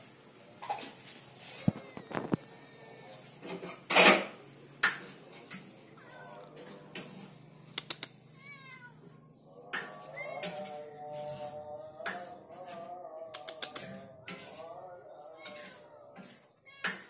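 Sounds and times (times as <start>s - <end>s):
cat meowing: 8.4s - 9.2s.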